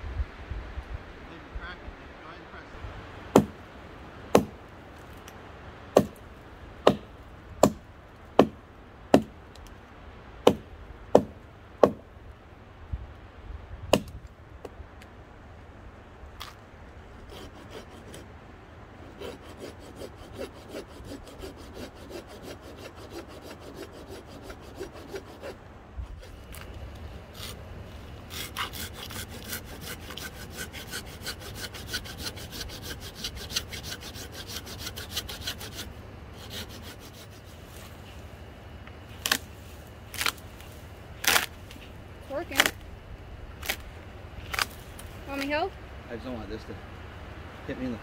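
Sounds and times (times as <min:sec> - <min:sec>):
hand saw cutting wood: 0:17.2 - 0:18.2, 0:19.0 - 0:26.7, 0:27.3 - 0:27.6, 0:28.2 - 0:37.9, 0:41.2 - 0:41.5
wood cracking: 0:40.1 - 0:41.9, 0:43.6 - 0:45.5.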